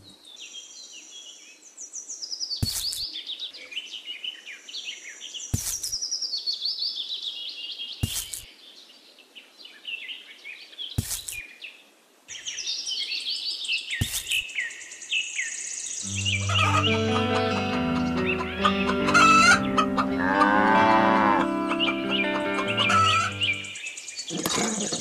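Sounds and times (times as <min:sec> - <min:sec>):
songbirds chirping: 0:00.0 - 0:25.0
chickens clucking: 0:16.1 - 0:23.7
cow mooing: 0:16.4 - 0:23.3.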